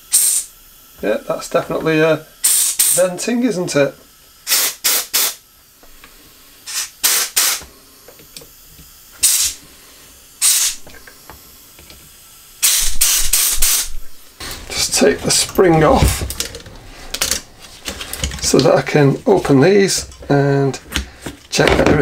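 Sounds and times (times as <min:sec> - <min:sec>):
compressed air blasts hissing: 0:00.0 - 0:21.6.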